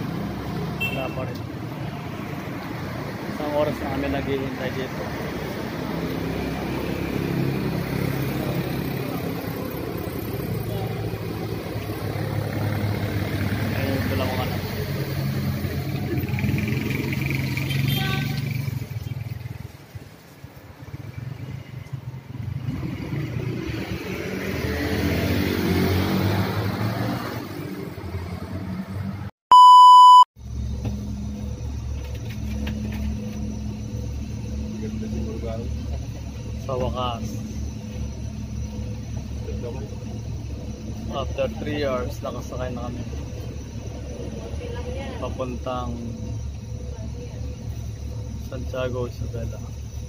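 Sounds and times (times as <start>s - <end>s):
vehicle engine passing: 0.0s - 19.8s, 20.4s - 29.3s
loud electronic beep: 29.5s - 30.3s.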